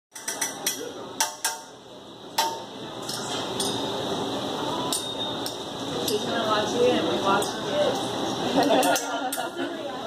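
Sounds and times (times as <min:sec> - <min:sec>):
metal spatula clinking on griddle: 0:04.9 - 0:06.3, 0:08.7 - 0:09.5.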